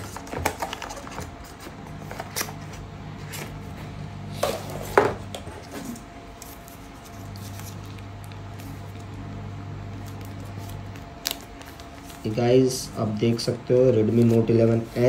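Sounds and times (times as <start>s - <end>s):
box and phone handling: 0.0s - 3.8s.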